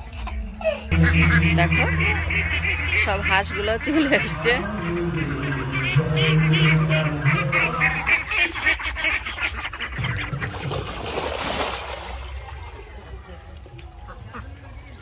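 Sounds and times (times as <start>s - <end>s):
low hum: 0.0s - 8.4s
ducks quacking: 0.0s - 15.0s
ducks splashing into water: 9.7s - 15.0s.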